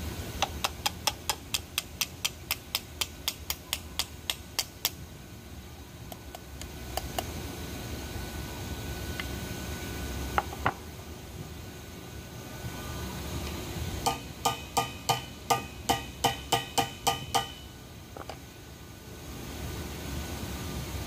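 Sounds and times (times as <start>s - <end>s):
metal strikes ringing: 14.0s - 17.7s.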